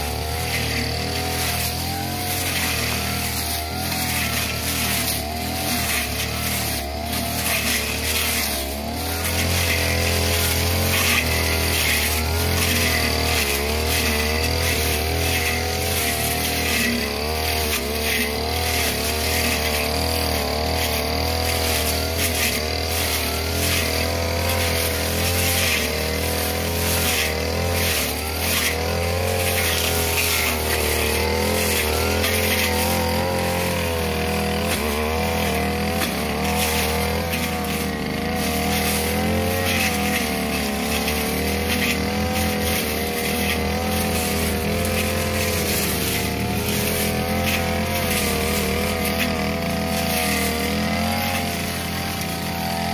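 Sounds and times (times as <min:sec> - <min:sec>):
brush cutter engine running: 0:00.0 - 0:52.9
grass swishing as it is cut: 0:00.0 - 0:52.9.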